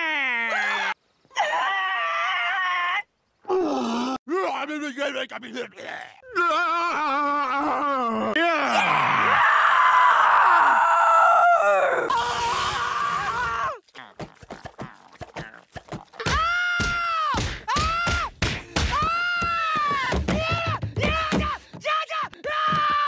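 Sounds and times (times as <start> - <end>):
groaning cries: 5.8 - 13.8.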